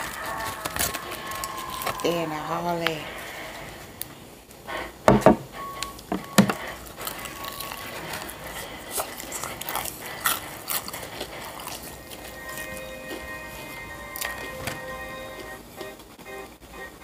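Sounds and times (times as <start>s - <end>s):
sharp knocks: 5.1s - 5.5s
mouth chewing and smacking: 6.6s - 16.1s.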